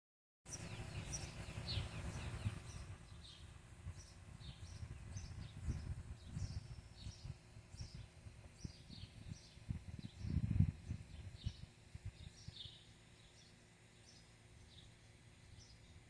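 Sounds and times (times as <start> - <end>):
uneven low rumble: 0.5 - 12.6
small birds chirping: 0.5 - 16.0.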